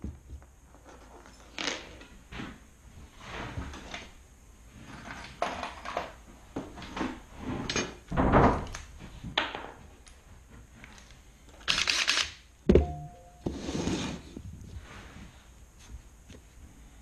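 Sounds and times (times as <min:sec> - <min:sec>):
knocks and scrapes on workbench: 0:12.7 - 0:14.4.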